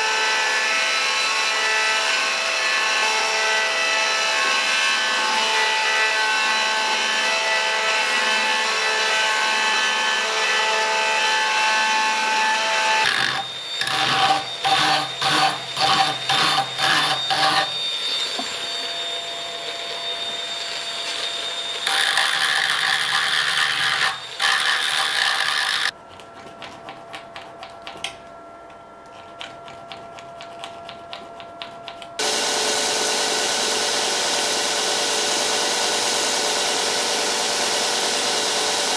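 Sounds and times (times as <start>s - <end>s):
rotary tool high whine: 0.0s - 26.0s, 32.0s - 38.9s
belt grinder grinding steel: 13.0s - 18.8s, 19.6s - 25.9s.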